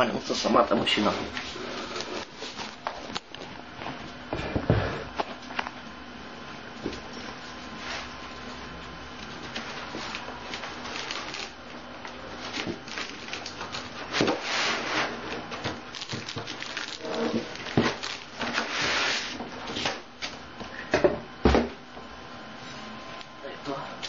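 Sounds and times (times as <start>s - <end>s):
packaging rustling and scraping: 0.4s - 3.2s, 9.2s - 19.9s.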